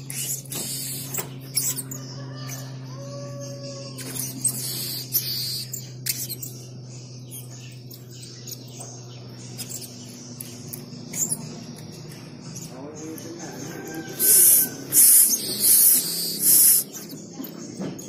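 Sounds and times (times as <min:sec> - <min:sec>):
parrot squeaky calls: 0:00.0 - 0:08.7, 0:14.1 - 0:17.2
low steady hum: 0:00.0 - 0:18.0.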